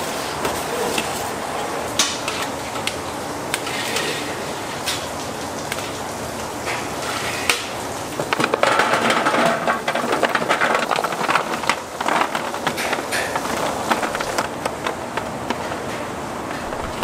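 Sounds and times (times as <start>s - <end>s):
utensils clattering: 3.6s - 5.1s, 6.6s - 17.0s.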